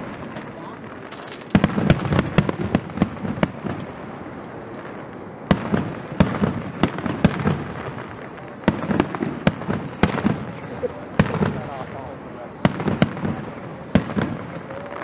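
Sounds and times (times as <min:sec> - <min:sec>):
fireworks bursting and crackling: 0:00.0 - 0:15.0.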